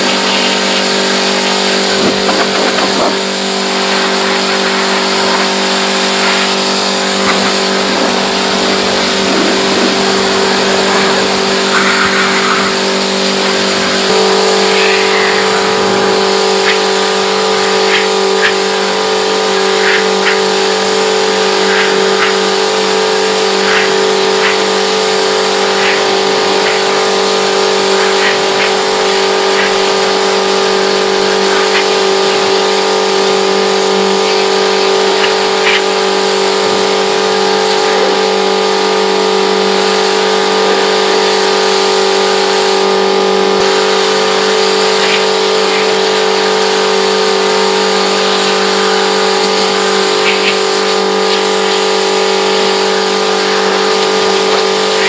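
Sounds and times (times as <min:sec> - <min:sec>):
pressure washer running: 0:00.0 - 0:55.0.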